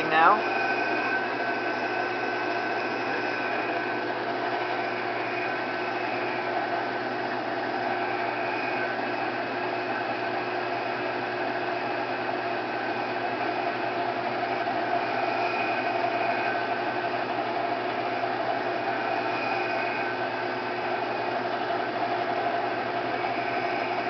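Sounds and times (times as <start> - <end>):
milling machine motor hum: 0.0 - 24.0
hiss of metal cutting: 18.8 - 20.6.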